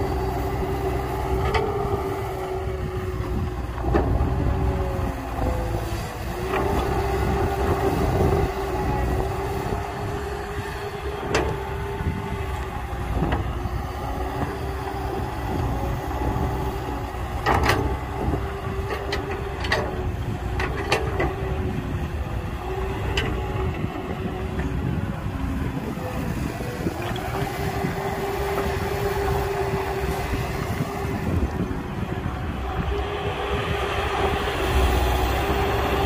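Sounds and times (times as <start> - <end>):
heavy diesel machinery running: 0.0 - 36.0.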